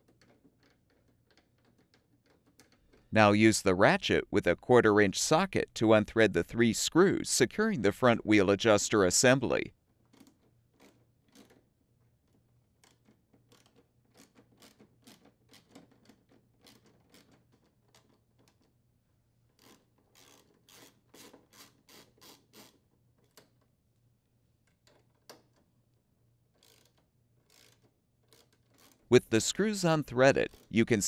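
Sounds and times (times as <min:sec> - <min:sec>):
hand ratchet clicking: 0:19.6 - 0:23.4, 0:26.5 - 0:29.1.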